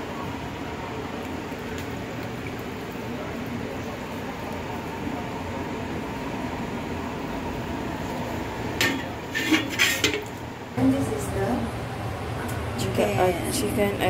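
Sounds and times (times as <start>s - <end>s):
utensil scraping a metal wok: 8.8s - 10.3s.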